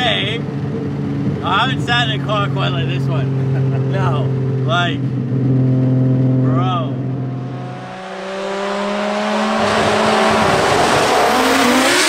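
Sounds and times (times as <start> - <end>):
car accelerating past: 5.2 - 12.0.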